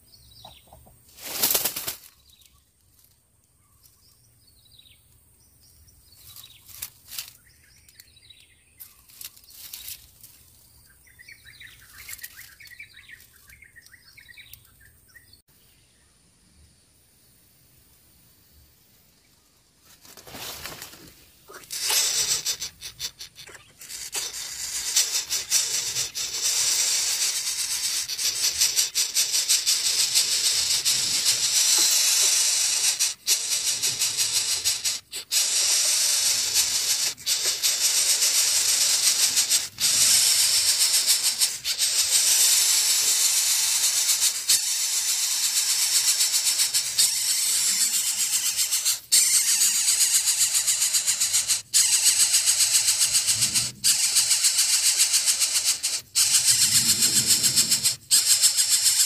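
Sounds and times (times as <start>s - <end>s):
nestlings hissing: 21.5s - 59.0s.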